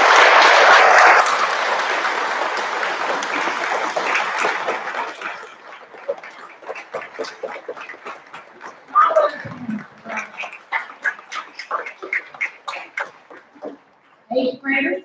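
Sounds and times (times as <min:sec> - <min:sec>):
group applauding: 0:00.0 - 0:14.0
murmuring voices: 0:02.2 - 0:13.8.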